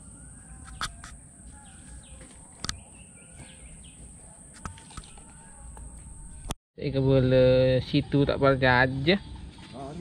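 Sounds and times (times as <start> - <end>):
faint bird chirps: 0.0 - 6.5.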